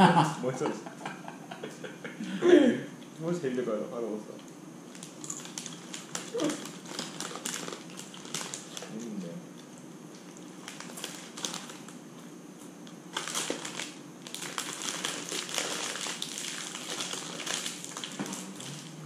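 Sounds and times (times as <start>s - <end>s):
plastic bag crinkling: 4.9s - 9.0s, 10.2s - 12.0s, 13.1s - 19.0s
crunchy chewing: 4.9s - 19.0s.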